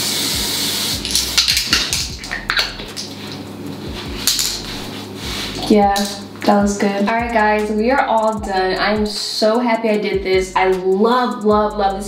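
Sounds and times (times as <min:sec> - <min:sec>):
spray can hissing: 0:00.0 - 0:03.4.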